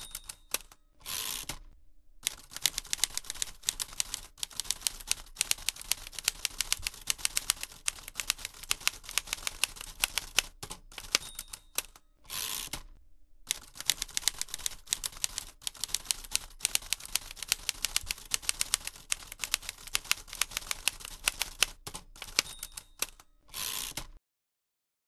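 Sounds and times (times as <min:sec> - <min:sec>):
typewriter keys clattering: 0:02.3 - 0:12.0, 0:13.5 - 0:23.2.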